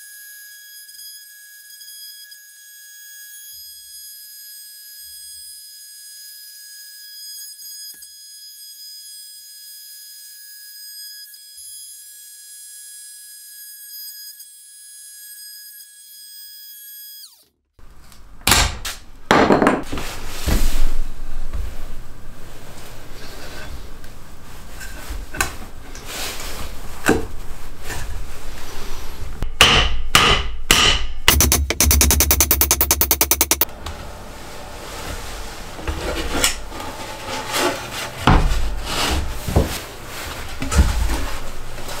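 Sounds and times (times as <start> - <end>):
wood scraping on wood: 34.5 - 42.0.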